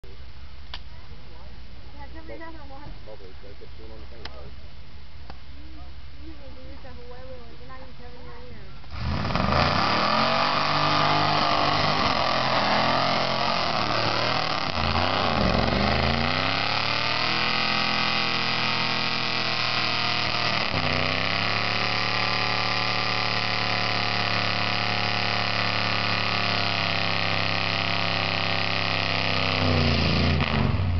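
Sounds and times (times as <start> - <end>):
truck engine under load: 8.7 - 30.9.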